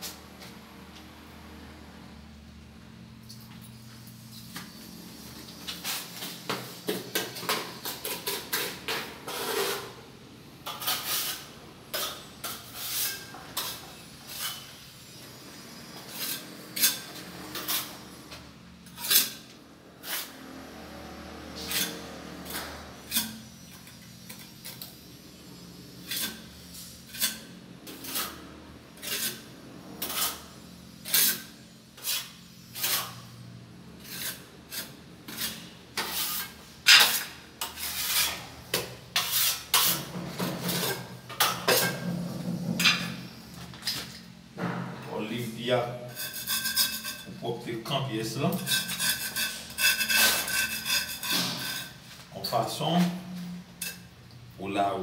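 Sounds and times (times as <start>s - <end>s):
metal blade scraping tile joints: 48.4s - 52.0s.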